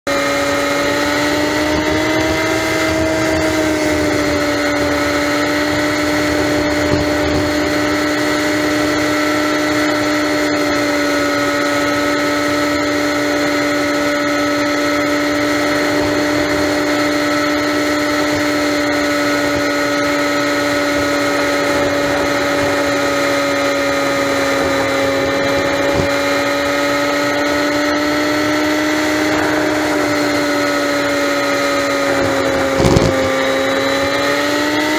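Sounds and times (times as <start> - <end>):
motorcycle engine whine: 0.0 - 34.9
wind and road noise: 0.1 - 34.9.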